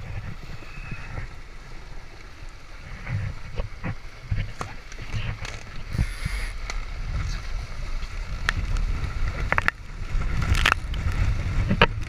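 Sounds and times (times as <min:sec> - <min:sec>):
water rushing and splashing: 0:00.0 - 0:12.0
wind buffeting microphone: 0:00.0 - 0:12.0
sail slapping and clattering: 0:02.8 - 0:12.0.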